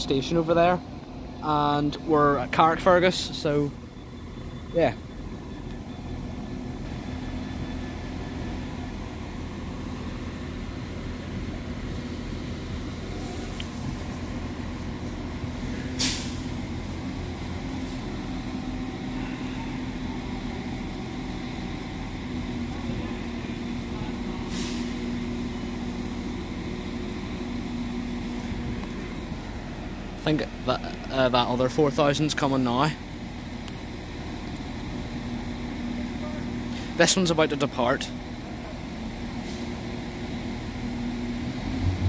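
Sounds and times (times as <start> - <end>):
diesel engines idling: 0.0 - 42.0
air hissing: 15.6 - 18.4, 24.4 - 25.0.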